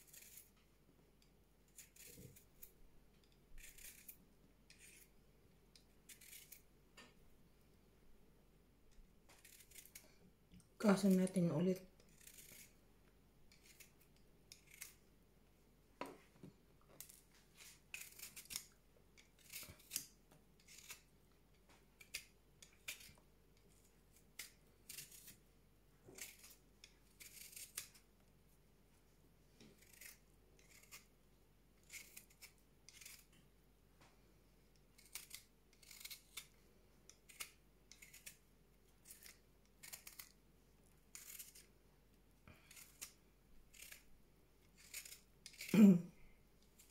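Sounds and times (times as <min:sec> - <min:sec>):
spoon scraping ginger skin: 0:00.0 - 0:00.6, 0:01.7 - 0:05.1, 0:05.8 - 0:06.7, 0:09.3 - 0:10.1, 0:11.0 - 0:12.8, 0:13.5 - 0:15.0, 0:17.0 - 0:25.4, 0:26.1 - 0:28.1, 0:29.8 - 0:31.1, 0:31.8 - 0:33.4, 0:35.0 - 0:36.5, 0:37.1 - 0:38.4, 0:39.0 - 0:40.4, 0:41.1 - 0:41.7, 0:42.6 - 0:45.7.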